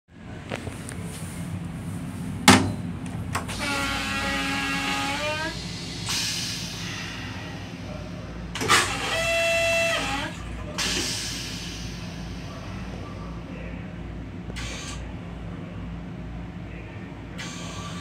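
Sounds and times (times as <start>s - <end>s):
low train rumble: 0.1s - 18.0s
hiss: 5.6s - 7.7s
toilet flushing: 8.6s - 11.8s.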